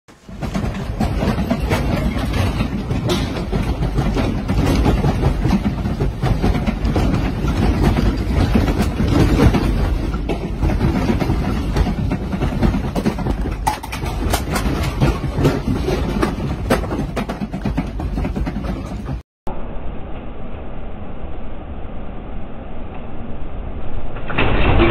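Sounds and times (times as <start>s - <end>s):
furniture rattling and clattering: 0.1s - 19.2s
earthquake rumble: 0.1s - 24.9s.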